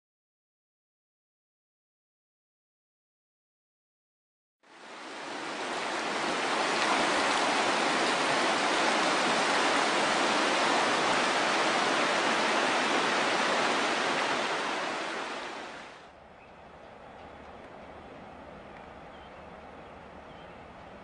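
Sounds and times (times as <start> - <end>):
river rushing over rocks: 4.7 - 16.1.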